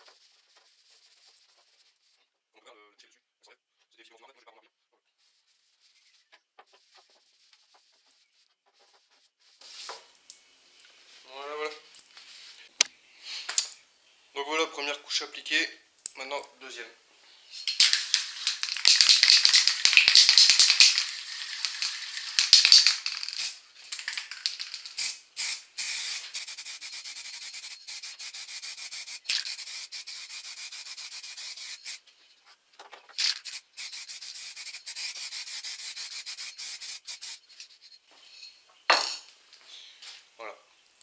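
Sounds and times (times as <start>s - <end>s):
spray-paint can hissing: 17.6s - 32.0s, 33.2s - 37.6s.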